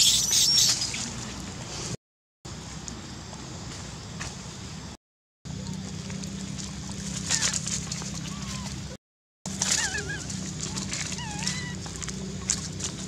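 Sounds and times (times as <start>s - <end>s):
steady low hum: 1.2s - 13.0s
dry leaves crackling: 6.5s - 8.8s, 9.5s - 13.0s.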